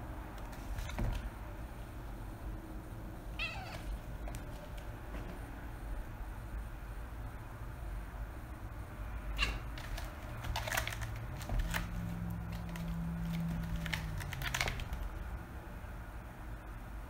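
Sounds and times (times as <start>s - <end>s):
steady low hum: 0.0s - 17.0s
kitten claws scratching: 9.4s - 15.3s.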